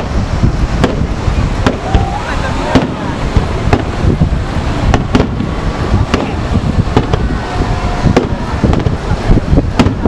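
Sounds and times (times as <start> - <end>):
firework shells bursting: 0.0 - 2.0, 4.7 - 7.3, 9.6 - 10.0
low rumble of barrage: 0.0 - 10.0.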